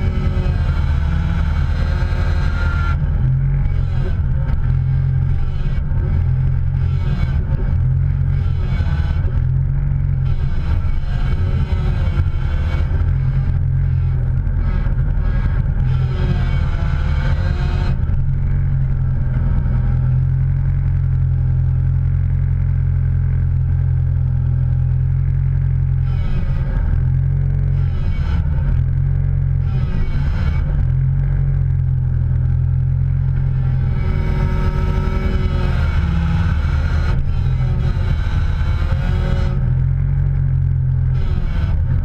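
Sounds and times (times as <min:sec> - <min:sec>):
motor vehicle droning: 0:00.0 - 0:42.0.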